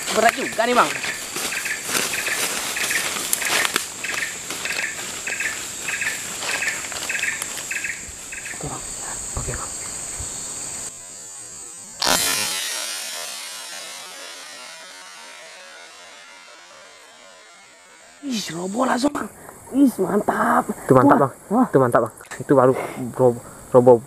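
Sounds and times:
rustling in undergrowth: 0.0s - 15.3s
repeating insect chirp: 0.0s - 23.8s
insects droning: 0.0s - 24.0s.

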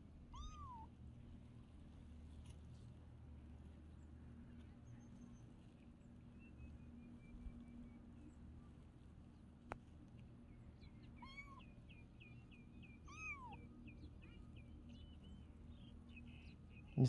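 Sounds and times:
faint kitten meows: 0.3s - 0.9s, 11.2s - 11.7s, 13.0s - 13.7s.

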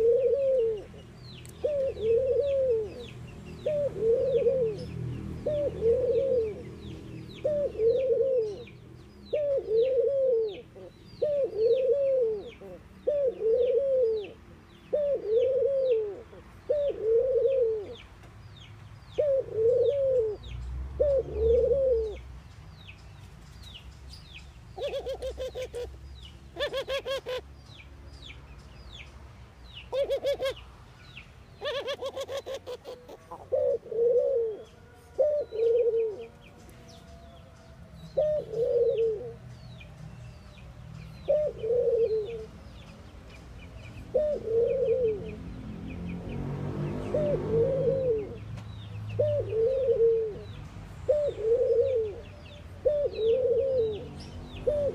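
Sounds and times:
dove cooing: 0.0s - 18.0s, 19.2s - 22.2s, 24.8s - 27.5s, 29.9s - 30.6s, 31.6s - 37.4s, 38.1s - 39.4s, 41.2s - 42.6s, 44.1s - 45.5s, 47.1s - 48.5s, 49.2s - 54.9s.

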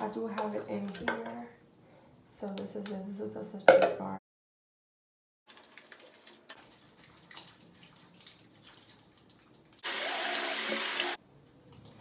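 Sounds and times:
soapy hands rubbing lather: 5.5s - 11.2s
sink tap running: 9.8s - 11.2s.

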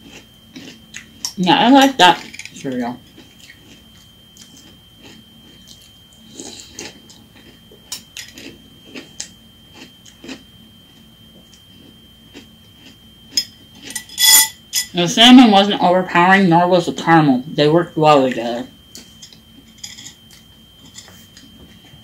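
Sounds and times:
crunchy chewing: 0.0s - 14.8s
spoon clinking in glass bowl: 13.4s - 14.9s
ringing clink: 13.9s - 14.9s.

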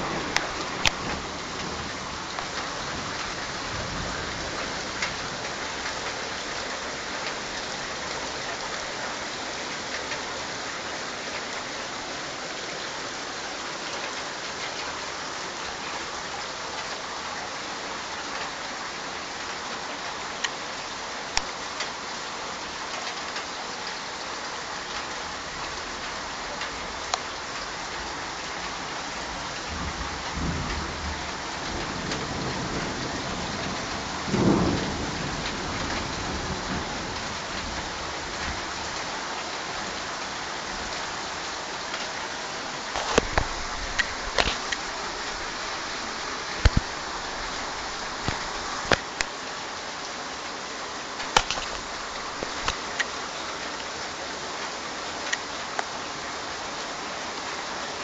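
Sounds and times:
raindrops ticking: 0.0s - 11.7s, 21.3s - 22.0s, 22.8s - 49.4s, 51.1s - 55.9s
torrential rain pouring: 0.0s - 58.0s
thunder: 29.7s - 37.8s.

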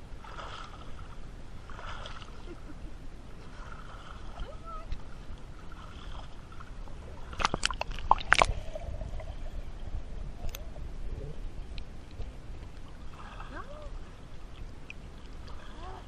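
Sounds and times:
pool water sloshing and gurgling: 0.0s - 10.1s, 12.6s - 16.0s
low underwater rumble: 0.0s - 16.0s
sharp water splashes: 0.2s - 2.6s, 3.4s - 9.2s.

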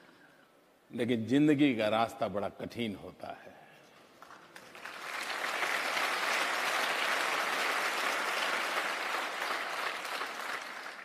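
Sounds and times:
audience applause: 4.6s - 11.0s.

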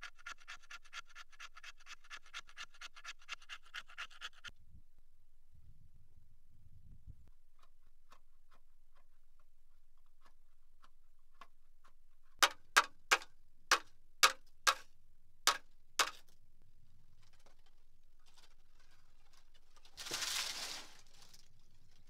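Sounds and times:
knife scraping ferro rod: 0.0s - 4.5s.

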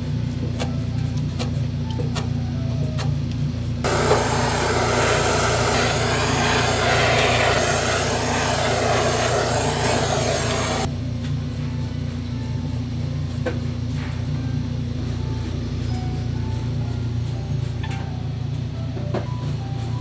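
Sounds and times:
gas torch hissing: 3.8s - 10.9s
low hum: 3.8s - 11.1s.

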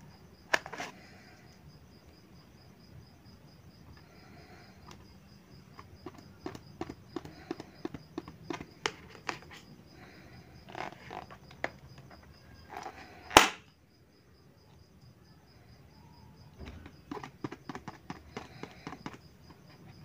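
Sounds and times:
rubbery scratching: 10.7s - 13.1s, 16.6s - 20.0s
balloon bursting pop: 13.3s - 13.6s.

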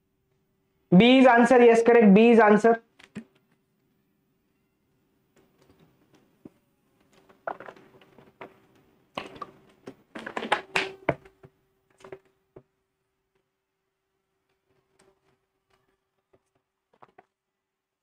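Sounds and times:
plastic bottle knocks and rustles: 7.2s - 8.6s.

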